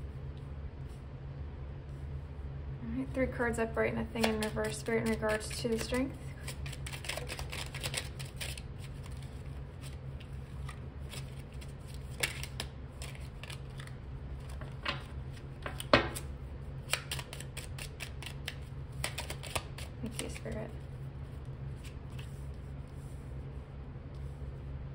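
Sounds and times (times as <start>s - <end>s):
low hum: 0.0s - 24.9s
cards flicking and snapping: 4.2s - 20.6s.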